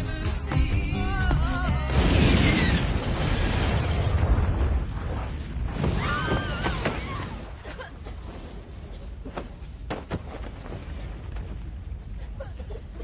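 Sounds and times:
explosion rumble: 1.9 - 7.7.

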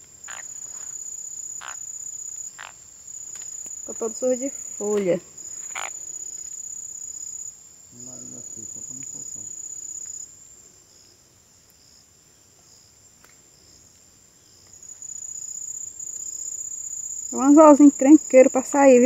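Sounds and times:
insect high-pitched trill: 0.0 - 11.1, 14.4 - 19.0.

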